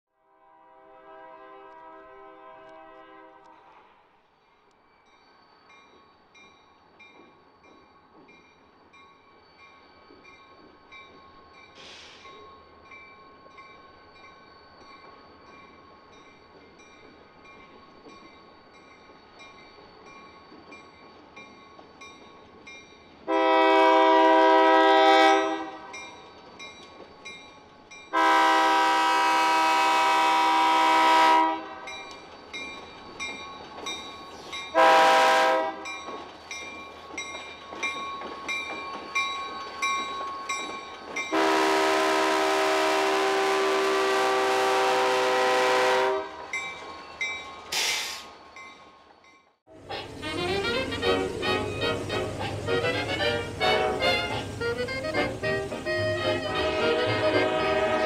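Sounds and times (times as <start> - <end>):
low rumble of train: 0.1 - 58.0
locomotive horn blasts: 0.3 - 3.7, 23.3 - 25.9, 28.1 - 31.9, 34.7 - 35.8, 41.3 - 46.4, 50.1 - 58.0.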